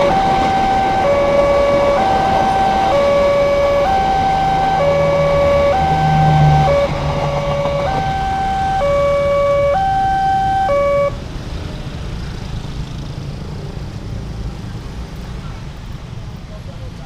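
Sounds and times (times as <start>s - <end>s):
level crossing warning alarm: 0.0s - 11.2s
motorbike traffic passing: 0.0s - 17.0s.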